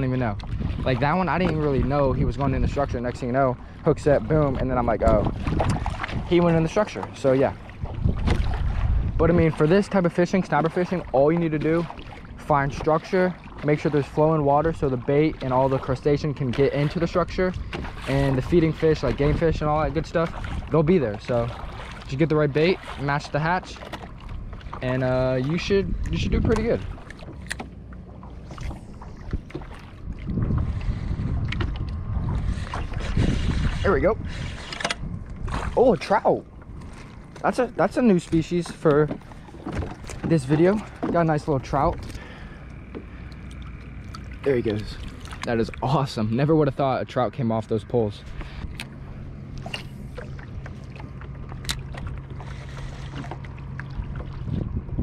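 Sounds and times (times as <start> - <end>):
wind buffeting microphone: 0.0 - 27.6, 28.3 - 55.0
steady low hum: 0.0 - 55.0
water lapping against boat hull: 0.0 - 55.0.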